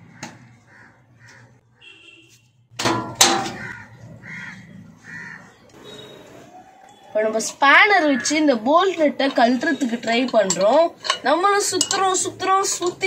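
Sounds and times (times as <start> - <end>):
crows cawing: 0.0 - 2.0, 3.4 - 5.7
metal panel clattering: 2.8 - 3.6.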